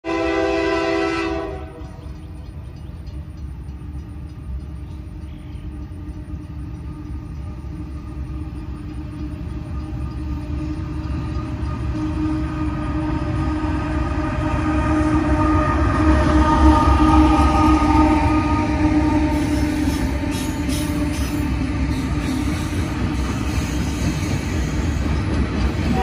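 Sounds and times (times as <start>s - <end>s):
locomotive horn blowing: 0.0s - 2.0s, 11.7s - 25.0s
locomotive rumble: 0.1s - 26.0s.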